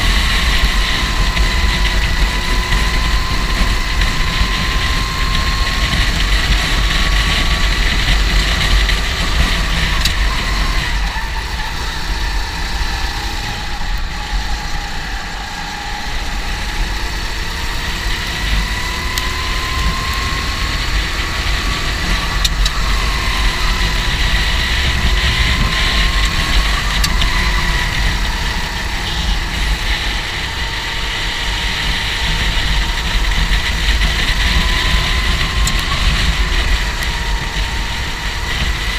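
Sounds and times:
go-kart engine revving: 0.0 - 38.9
heavy low rumble: 0.0 - 38.9.

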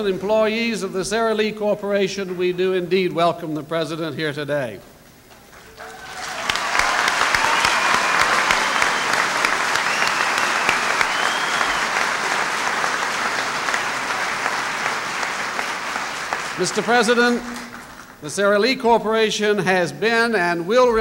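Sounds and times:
audience applauding: 5.5 - 18.2.

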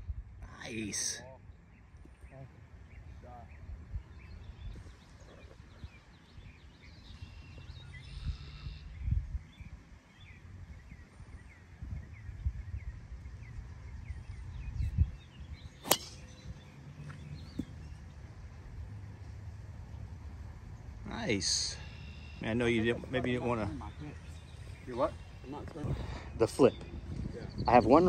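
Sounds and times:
birds chirping: 0.4 - 28.0
golf club striking ball: 15.8 - 17.7.

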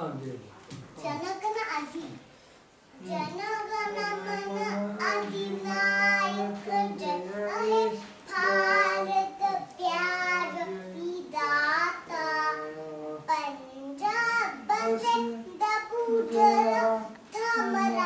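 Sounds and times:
girl singing: 3.0 - 18.0.

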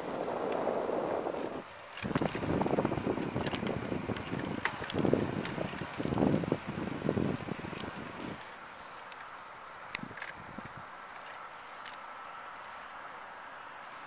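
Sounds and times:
bicycle rolling on asphalt: 0.0 - 13.3
small rattles and clicks: 1.4 - 9.3, 9.9 - 12.0.

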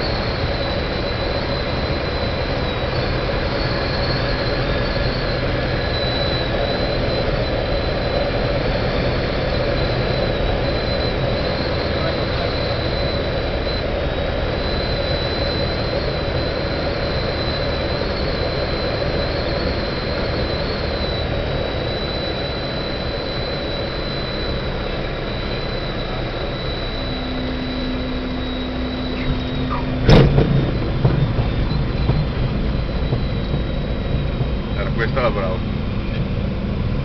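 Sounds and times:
propeller aircraft engine: 0.0 - 37.0
thin high whine: 0.0 - 37.0
wind noise: 0.0 - 37.0
loud thump: 30.0 - 34.7.

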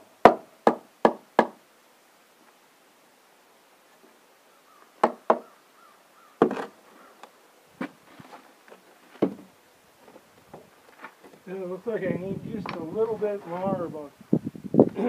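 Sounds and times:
hammer knocking on wooden board: 5.0 - 5.5.

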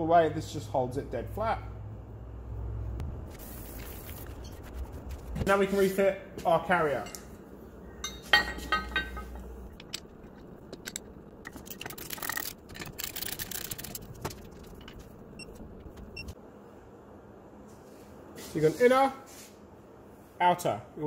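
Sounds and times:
metal clinks and scrapes: 8.0 - 15.0.

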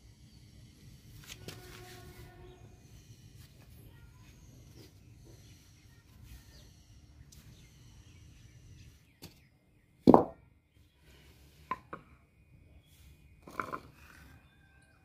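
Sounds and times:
wooden block thump on floor: 10.0 - 10.4.

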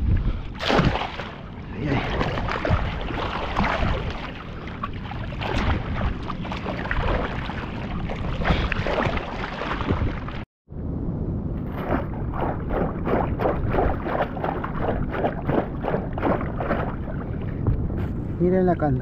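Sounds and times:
wind on microphone: 0.0 - 19.0
seawater sloshing and splashing: 0.5 - 10.5, 11.7 - 17.7.

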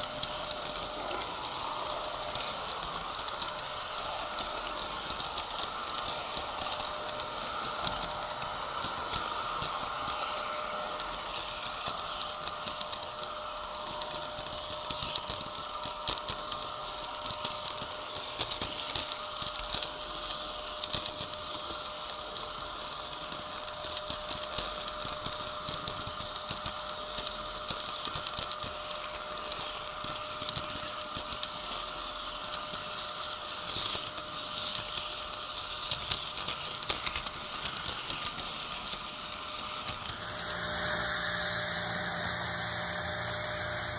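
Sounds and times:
model train motors humming: 0.0 - 43.9.

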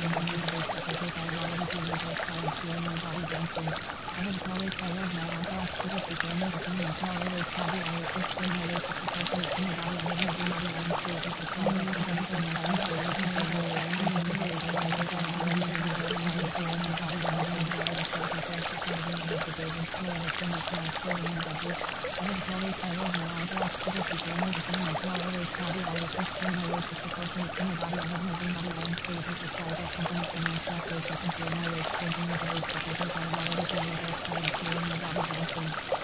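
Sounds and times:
low steady hum: 0.0 - 36.0
running water: 0.0 - 36.0.

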